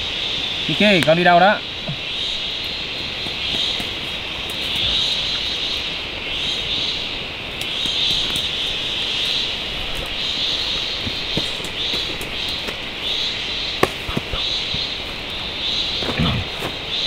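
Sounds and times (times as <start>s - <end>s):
insect chorus droning: 0.0s - 17.0s.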